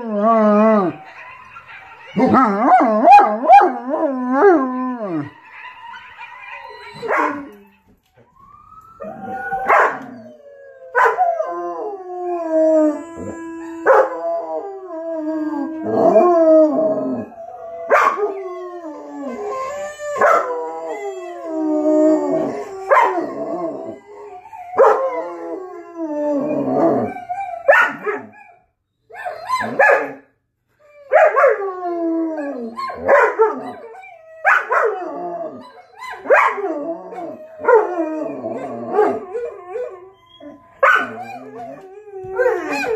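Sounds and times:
dog howling: 0:00.0 - 0:07.9, 0:08.9 - 0:30.2, 0:30.9 - 0:42.9
dog barking: 0:07.0 - 0:07.5, 0:09.7 - 0:10.0, 0:11.0 - 0:11.2, 0:17.9 - 0:18.2, 0:20.2 - 0:20.5, 0:27.7 - 0:28.3, 0:29.6 - 0:30.2, 0:31.1 - 0:31.6, 0:33.0 - 0:33.5, 0:36.3 - 0:36.6, 0:40.8 - 0:41.2.

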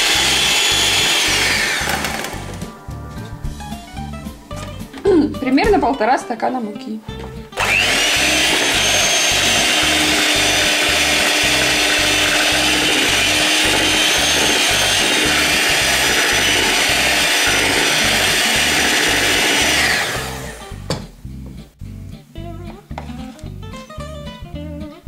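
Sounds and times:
electric hand mixer whining: 0:00.0 - 0:02.7, 0:07.6 - 0:20.8.

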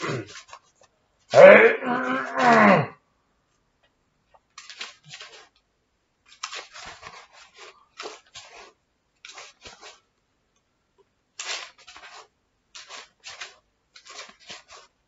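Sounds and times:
book pages rustling: 0:00.0 - 0:01.4, 0:04.3 - 0:10.1, 0:11.4 - 0:15.0.

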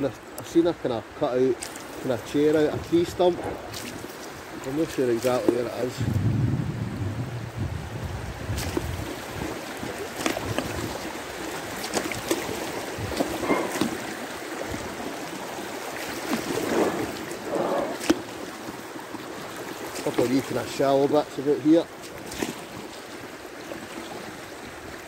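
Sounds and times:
river water rushing and gurgling: 0:00.0 - 0:25.0
water splashes: 0:00.0 - 0:25.0
light knocks against boat: 0:13.1 - 0:14.0.

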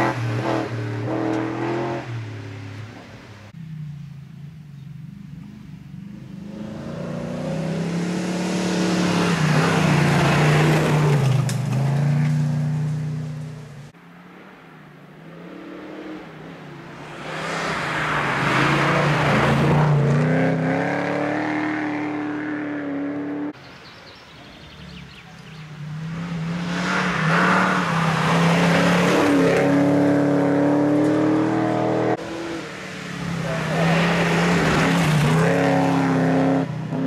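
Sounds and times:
rally car engine revving past: 0:17.0 - 0:23.6, 0:25.7 - 0:37.0.

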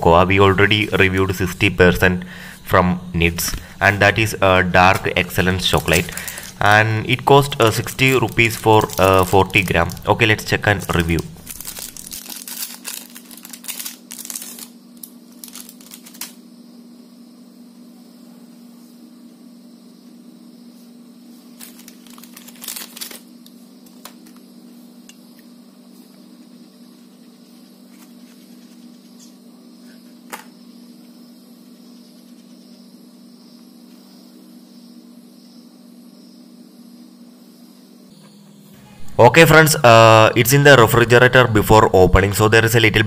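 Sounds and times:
faint steady hum: 0:00.0 - 0:43.0
foil wrapper crinkling: 0:04.9 - 0:16.4, 0:21.5 - 0:24.4.

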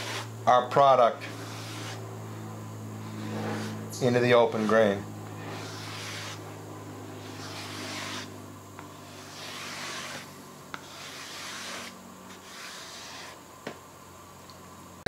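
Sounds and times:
scraper dragged across wood: 0:00.0 - 0:00.3, 0:01.2 - 0:02.1, 0:03.0 - 0:06.6, 0:07.2 - 0:13.4
steady low hum: 0:00.0 - 0:15.0.

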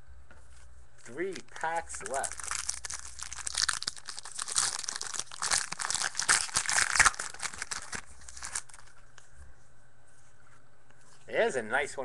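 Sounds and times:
wrapper crinkling: 0:01.3 - 0:09.0.

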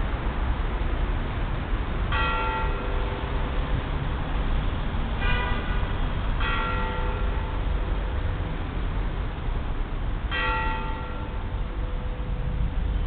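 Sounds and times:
church bells ringing: 0:02.1 - 0:03.4, 0:06.4 - 0:08.3, 0:10.3 - 0:12.3.

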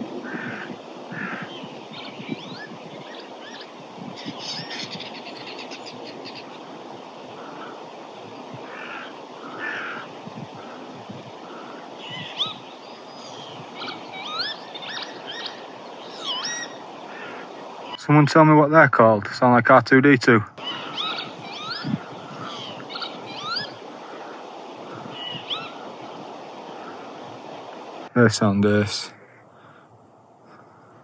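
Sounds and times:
birds whistling: 0:00.0 - 0:06.7, 0:08.7 - 0:17.7, 0:20.6 - 0:27.1
wind rumble on microphone: 0:00.0 - 0:08.8, 0:09.4 - 0:14.3, 0:20.6 - 0:27.9.

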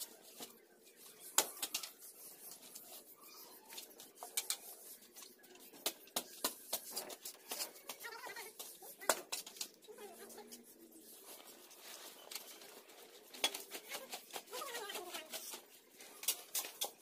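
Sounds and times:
shovel scraping on concrete: 0:06.2 - 0:17.0.

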